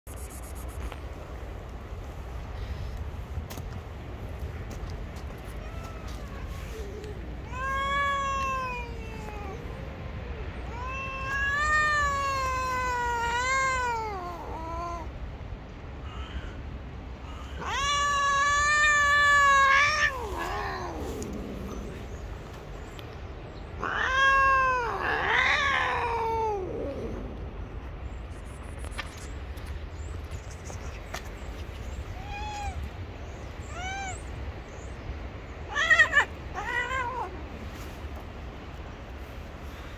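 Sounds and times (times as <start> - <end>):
cat meowing: 5.6 - 9.9, 10.6 - 15.1, 17.4 - 22.0, 23.8 - 27.0, 32.0 - 32.9, 35.7 - 37.4.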